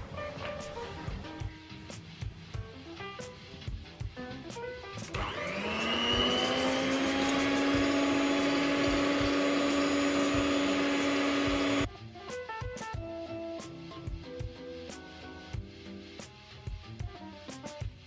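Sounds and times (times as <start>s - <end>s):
electric hand mixer whine: 5.1s - 11.9s.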